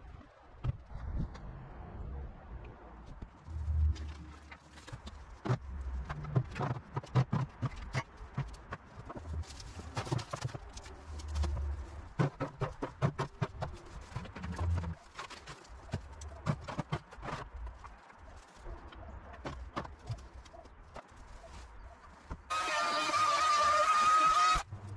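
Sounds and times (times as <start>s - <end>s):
sticks and bricks clattering: 4.0s - 18.3s.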